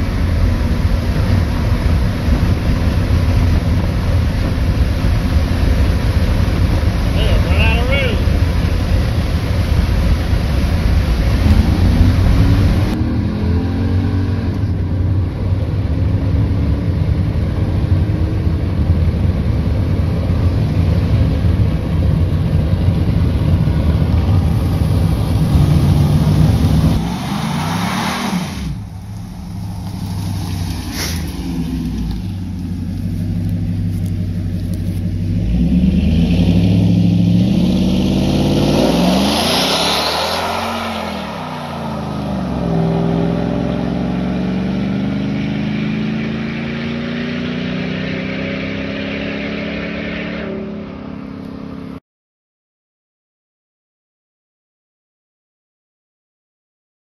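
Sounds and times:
pickup engine at full throttle: 0.0s - 52.0s
pickup passing by: 0.0s - 52.0s.

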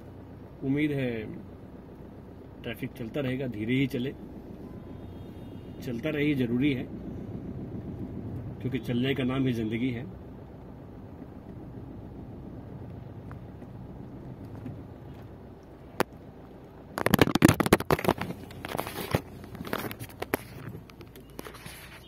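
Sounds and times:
car engine hum and road noise: 0.0s - 22.0s
phone rubbing against microphone: 17.0s - 22.0s.

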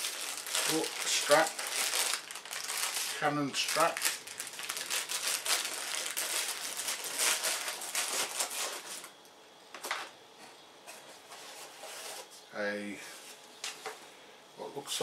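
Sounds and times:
plastic bag rustling: 0.0s - 9.1s.

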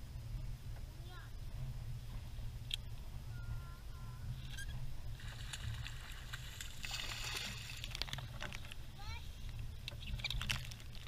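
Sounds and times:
water sloshing against boat hull: 0.4s - 11.0s
fish splashing at the surface: 5.2s - 8.3s.

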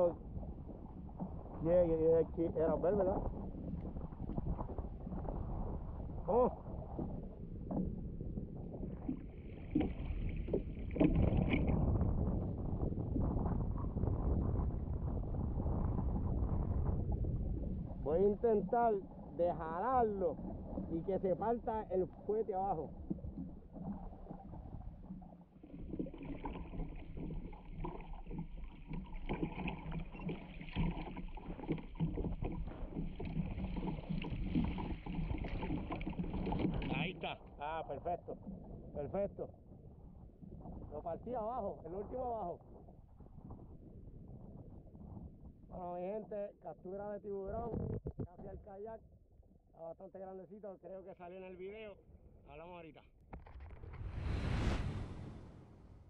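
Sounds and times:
wind on microphone: 0.0s - 25.2s
wind: 0.0s - 56.0s
water slapping against kayak hull: 8.6s - 12.6s, 16.1s - 38.7s.

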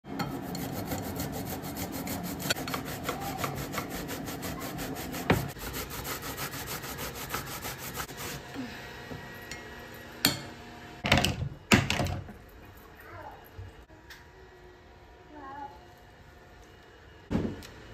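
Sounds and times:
grater rasping: 0.1s - 8.5s.

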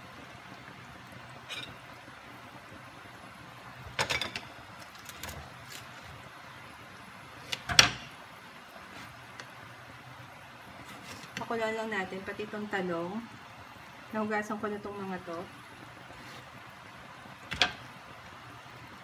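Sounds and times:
kitchen knocks and clunks: 7.6s - 8.1s, 17.5s - 17.8s.

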